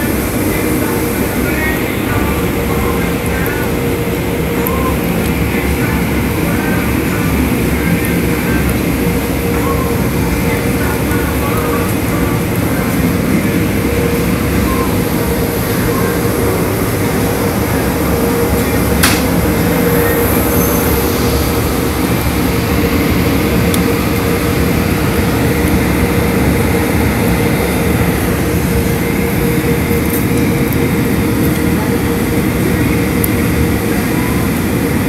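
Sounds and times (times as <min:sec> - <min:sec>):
car wash rumble and spray: 0:00.0 - 0:35.0
constant machine hum: 0:00.0 - 0:35.0
sharp click: 0:19.0 - 0:19.4.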